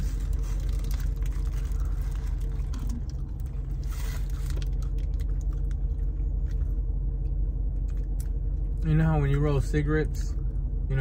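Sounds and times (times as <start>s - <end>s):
wrapper paper rustling: 0.0s - 5.4s
car engine humming: 0.0s - 11.0s.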